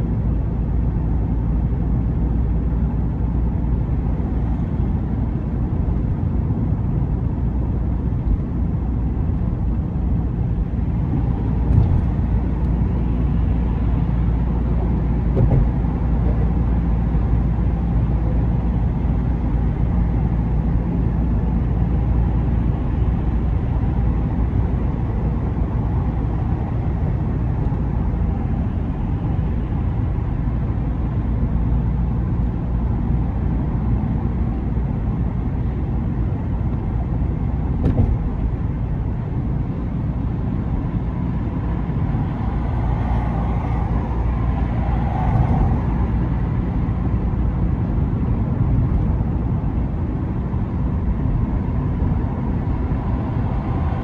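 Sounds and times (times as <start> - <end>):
engine and tyre rumble: 0.0 - 54.0
car thumps: 15.3 - 15.8, 37.7 - 38.4.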